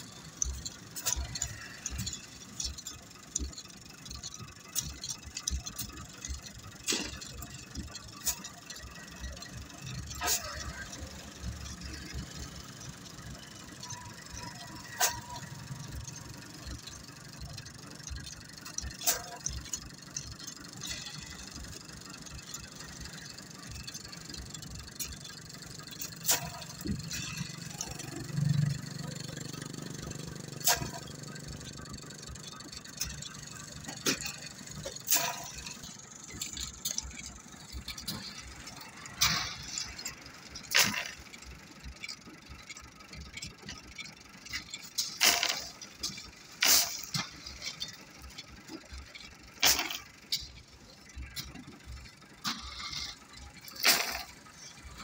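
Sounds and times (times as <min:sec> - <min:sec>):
low hum: 0:00.0 - 0:55.0
crushed stone rattling crash: 0:44.6 - 0:55.0.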